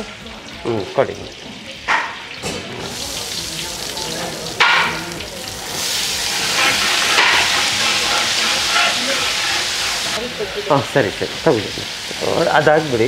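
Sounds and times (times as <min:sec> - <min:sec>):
hot oil sizzling: 0:00.0 - 0:13.0
spatula stirring in pan: 0:02.2 - 0:10.7.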